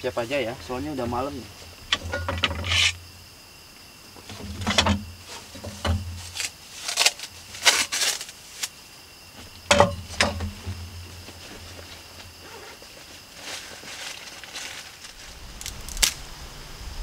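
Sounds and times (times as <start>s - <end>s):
small items knocking: 1.8s - 3.0s, 4.2s - 8.3s, 9.5s - 11.9s.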